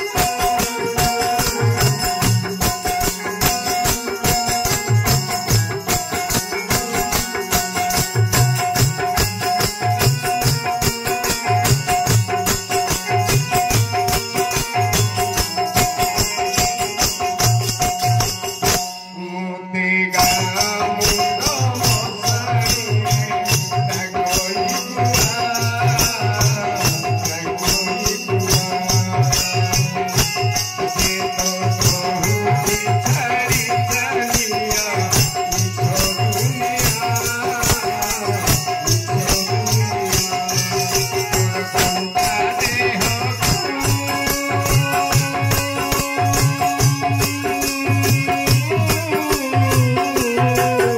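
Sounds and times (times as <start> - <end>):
hand drum beat: 0.0 - 18.8, 20.6 - 50.9
keyboard drone: 0.0 - 18.8
jingling hand percussion: 0.0 - 50.9
man singing: 0.0 - 50.9.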